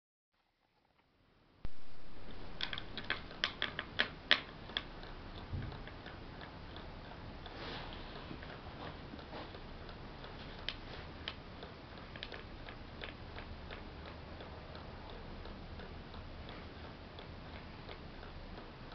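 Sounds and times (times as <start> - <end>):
steady hiss: 1.7 - 6.0
pendulum clock ticking: 1.7 - 18.9.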